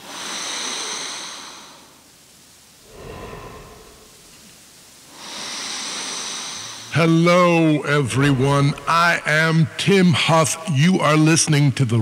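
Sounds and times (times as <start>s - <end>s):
person breathing into microphone: 2.8s - 4.4s.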